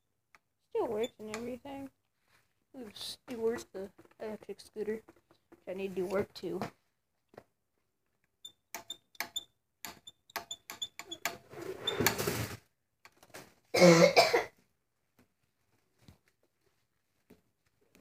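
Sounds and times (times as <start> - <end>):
person coughing: 13.8 - 14.6.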